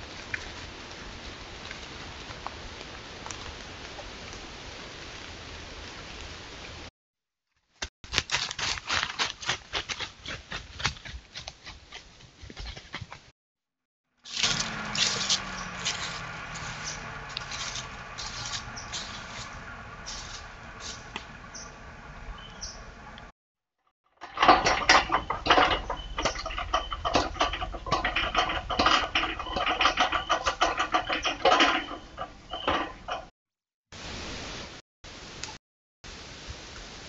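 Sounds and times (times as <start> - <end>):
footsteps crunching through dry leaves: 8.1 - 13.0, 14.3 - 22.8
person climbing metal ladder: 14.3 - 23.3, 24.2 - 33.3.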